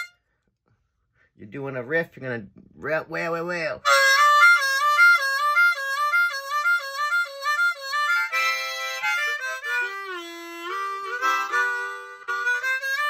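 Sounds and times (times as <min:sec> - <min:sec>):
blues harmonica: 0:00.0 - 0:00.3, 0:03.8 - 0:13.0.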